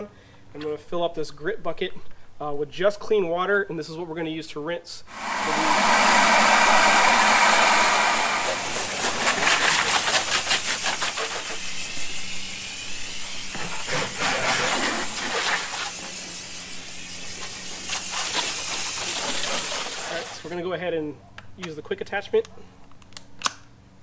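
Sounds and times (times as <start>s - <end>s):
hose water pouring into bucket: 5.1s - 20.5s.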